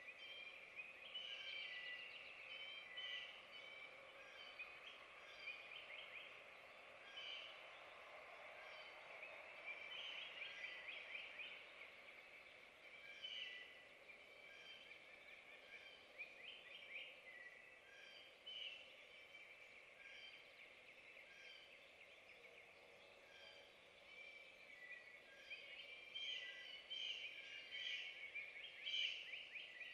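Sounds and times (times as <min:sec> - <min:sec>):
small birds chirping and trilling: 0:08.6 - 0:29.9.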